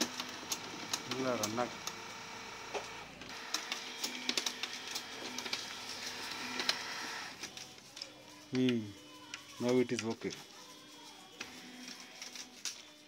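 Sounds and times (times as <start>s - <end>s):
printer motor humming with clicks: 0.0s - 7.4s.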